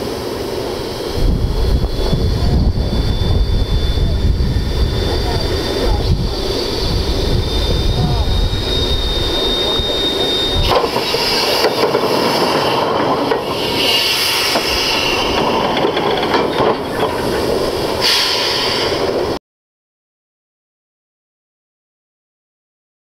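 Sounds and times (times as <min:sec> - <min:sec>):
metal knocks and clanks: 0:14.5 - 0:17.4.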